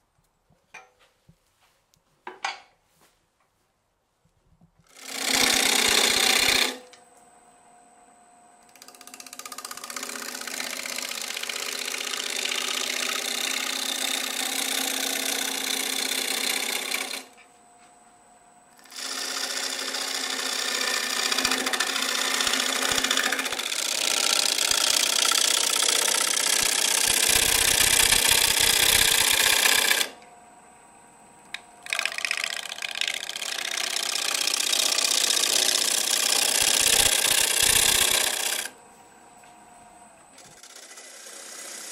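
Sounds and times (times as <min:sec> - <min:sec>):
gouge scraping wood on lathe: 0:05.0 - 0:06.8, 0:08.8 - 0:17.3, 0:18.8 - 0:30.1, 0:31.8 - 0:38.7, 0:40.5 - 0:41.9
lathe motor whine: 0:05.0 - 0:41.9.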